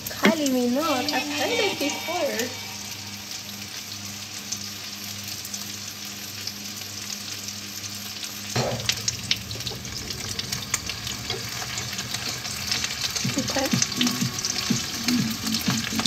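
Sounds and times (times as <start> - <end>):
low hum: 0.0 - 5.6, 8.4 - 15.4
food sizzling in a pan: 0.0 - 16.0
sharp crackles and clicks: 0.0 - 16.0.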